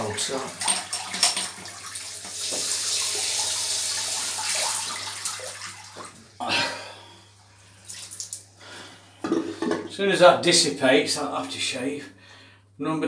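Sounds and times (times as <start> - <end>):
water running from a tap: 0.0 - 6.3, 7.7 - 8.5.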